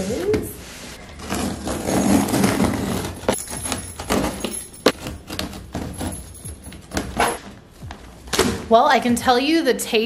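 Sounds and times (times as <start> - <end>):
cardboard scrapes and crinkles: 0.9 - 3.3.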